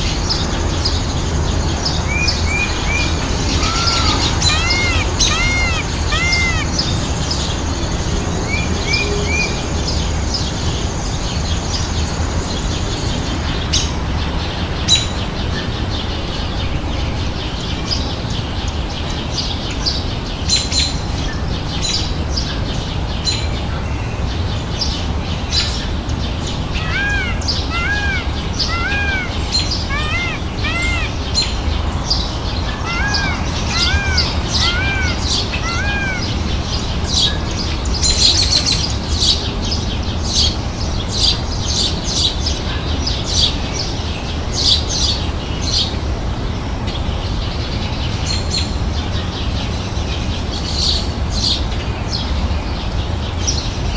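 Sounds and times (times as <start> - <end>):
birds chirping: 2.0 - 7.6, 26.3 - 37.3.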